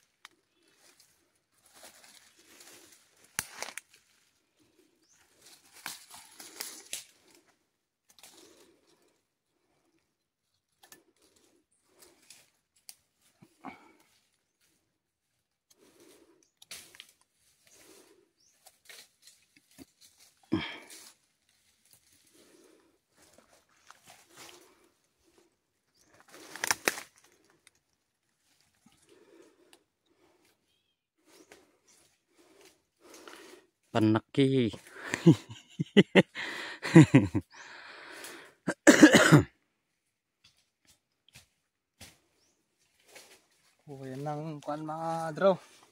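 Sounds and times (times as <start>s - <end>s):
person coughing: 38.7s - 39.5s.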